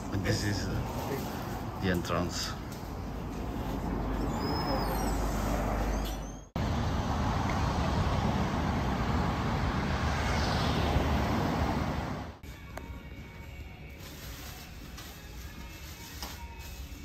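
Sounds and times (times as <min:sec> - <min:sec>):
city street traffic: 0:00.0 - 0:15.5.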